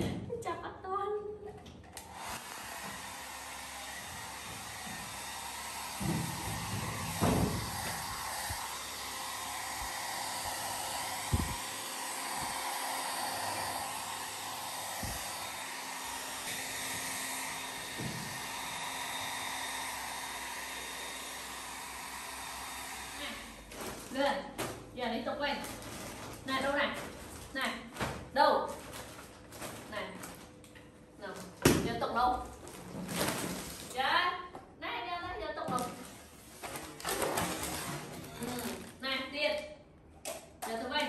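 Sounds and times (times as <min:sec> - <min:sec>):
hair dryer running: 0:01.8 - 0:24.3, 0:36.9 - 0:38.9.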